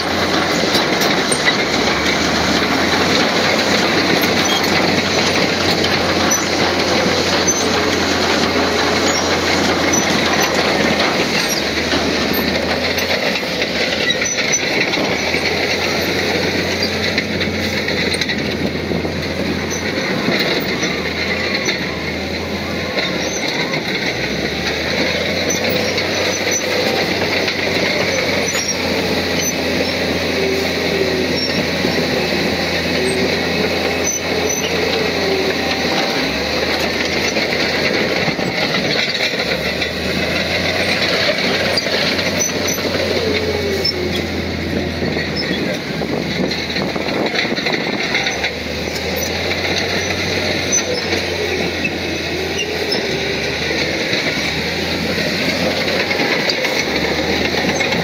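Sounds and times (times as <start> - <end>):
diesel engine under load: 0.0 - 58.0
steel tracks clanking and squealing: 0.0 - 58.0.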